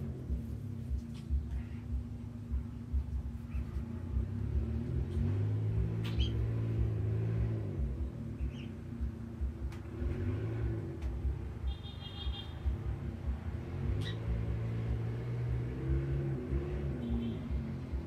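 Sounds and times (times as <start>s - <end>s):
low engine-like hum: 0.0s - 18.0s
bird chirps: 6.0s - 6.6s, 8.4s - 8.8s, 14.0s - 14.3s.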